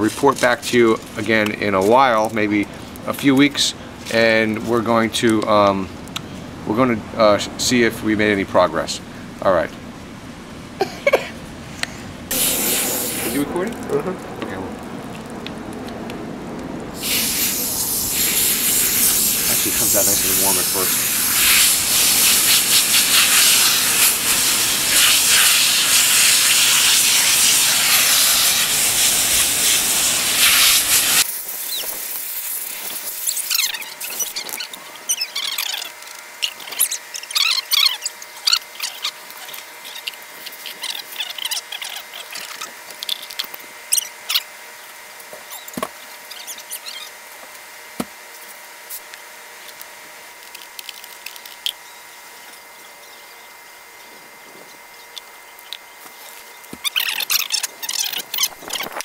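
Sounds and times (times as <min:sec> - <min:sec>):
hose water spraying and splashing: 0:12.3 - 0:14.2, 0:17.0 - 0:44.4.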